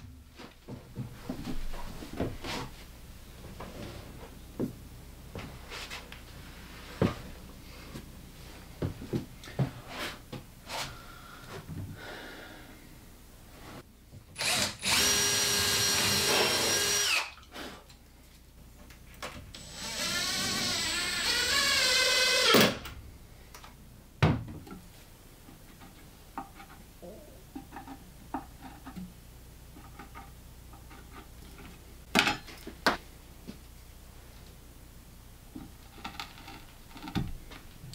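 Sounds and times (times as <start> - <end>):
cordless drill running: 14.4 - 17.3, 19.6 - 22.6.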